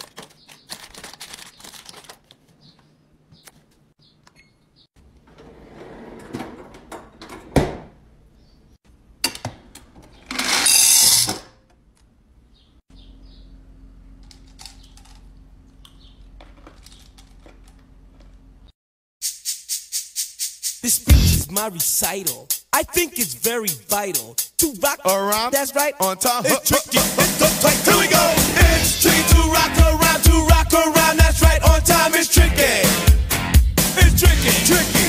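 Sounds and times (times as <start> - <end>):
wrappers crinkling: 0.0 - 2.5.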